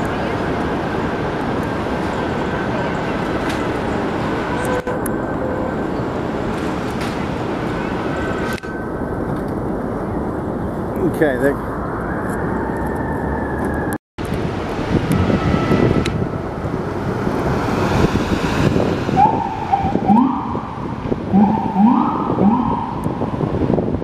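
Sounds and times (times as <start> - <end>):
city traffic: 0.0 - 24.0
passing vehicle engine: 11.8 - 23.9
electronic siren whoops: 19.1 - 23.3.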